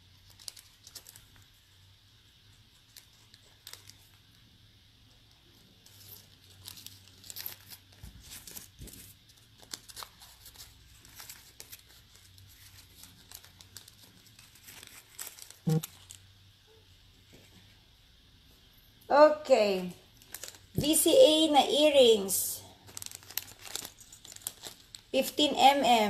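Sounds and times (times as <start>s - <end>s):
rustling and crinkling: 0.0s - 4.4s, 5.2s - 16.3s, 20.1s - 21.0s, 22.6s - 25.4s.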